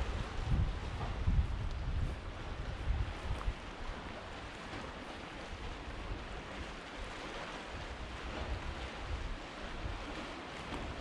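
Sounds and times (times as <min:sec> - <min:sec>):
wind gusting on microphone: 0:00.0 - 0:04.1
sea surf washing: 0:00.0 - 0:11.0.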